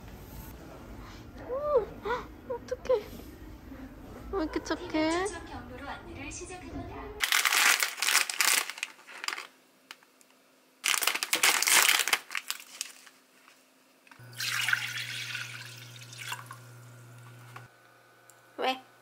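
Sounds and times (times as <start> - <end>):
plastic pouch crinkling: 7.2 - 10.1, 10.8 - 13.6
steady low hum: 13.3 - 19.0
water pouring into a pot: 14.2 - 16.8.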